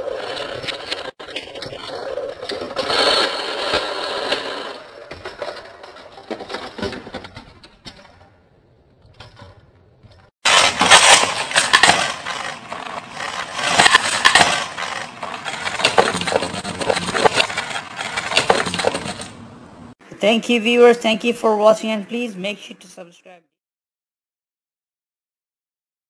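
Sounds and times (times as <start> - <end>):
plastic toy car clattering: 0.0 - 8.4, 9.0 - 19.4.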